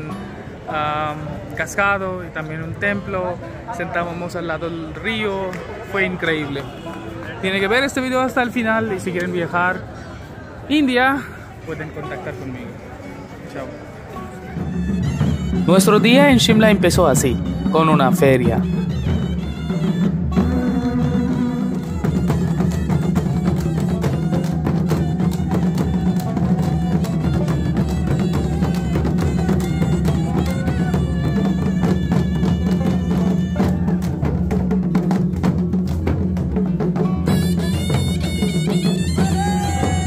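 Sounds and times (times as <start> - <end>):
reedy wind instrument melody: 13.7 - 34.6, 37.1 - 40.0
barrel drums beating: 14.2 - 40.0.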